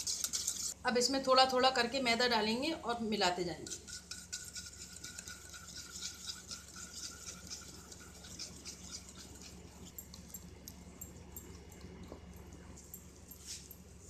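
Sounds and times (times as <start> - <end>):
whisk scraping metal bowl: 0.0 - 0.8, 3.4 - 10.2.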